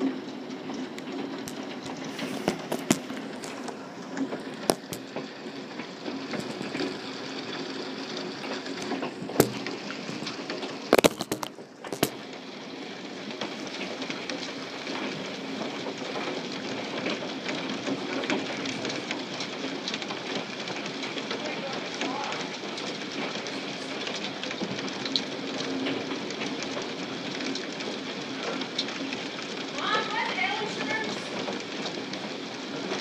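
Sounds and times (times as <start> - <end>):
hail pattering: 0.0 - 33.0
loud hailstone knocks: 9.3 - 9.8, 10.9 - 12.2.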